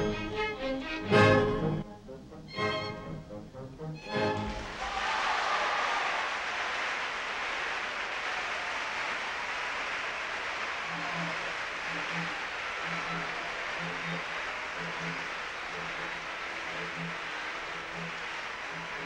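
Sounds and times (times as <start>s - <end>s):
soft low orchestral notes: 0.0s - 4.8s
tape hiss: 0.0s - 19.0s.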